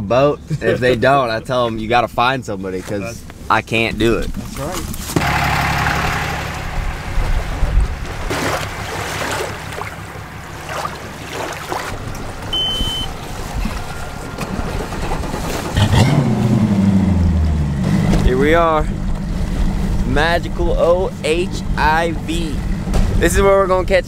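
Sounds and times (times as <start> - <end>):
engine running and revving: 4.6 - 23.4.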